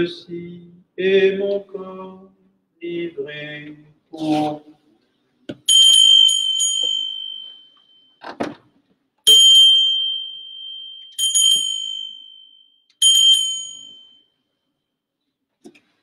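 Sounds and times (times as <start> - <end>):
small bell ringing: 5.7 - 8.2, 9.3 - 14.4.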